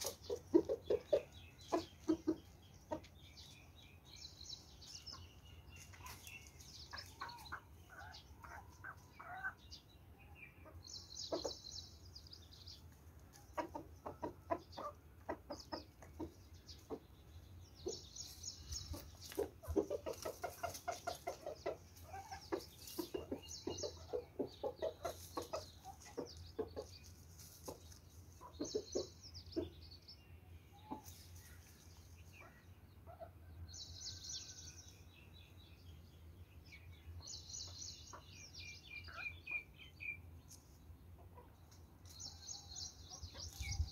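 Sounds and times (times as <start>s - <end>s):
chickens clucking: 0.0s - 33.7s, 37.2s - 43.9s.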